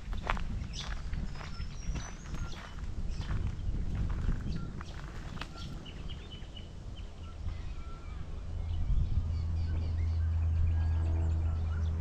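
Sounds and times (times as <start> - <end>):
plane engine drone: 0.0 - 12.0
small birds chirping: 0.0 - 12.0.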